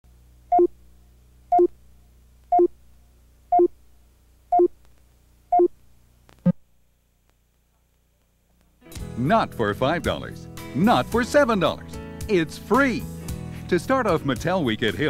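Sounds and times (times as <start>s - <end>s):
faint low hum: 0.1s - 8.8s
two-tone beeps: 1.5s - 1.7s.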